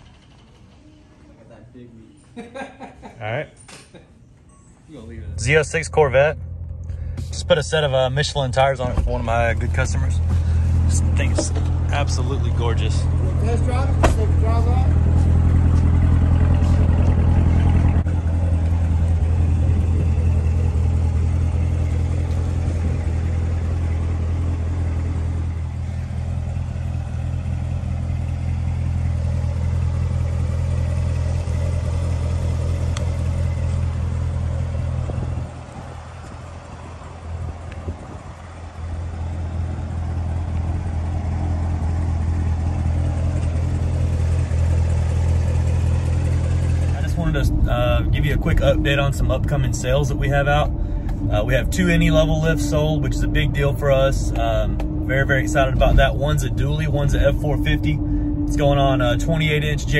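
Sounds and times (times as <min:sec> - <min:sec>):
car engine idling: 0:00.0 - 0:02.8, 0:05.0 - 0:59.9.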